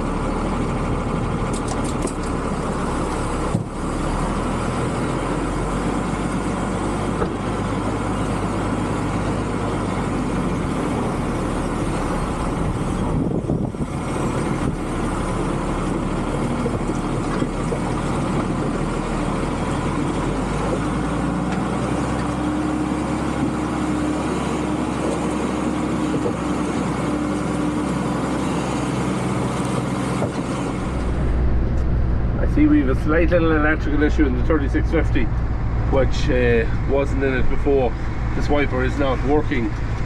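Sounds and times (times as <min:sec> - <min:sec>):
tractor diesel engine running: 0:00.0 - 0:40.0
steady higher tone: 0:30.6 - 0:39.5.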